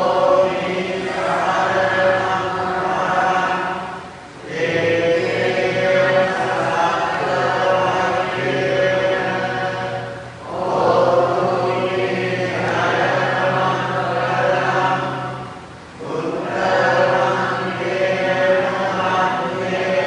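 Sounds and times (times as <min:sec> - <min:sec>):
many voices chanting in unison: 0:00.0 - 0:20.0.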